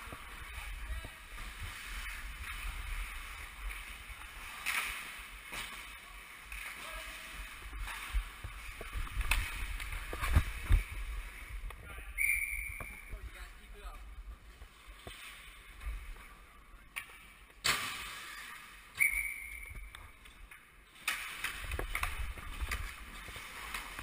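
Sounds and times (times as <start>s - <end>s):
referee's whistle: 12.2s - 13.1s, 19.0s - 19.9s.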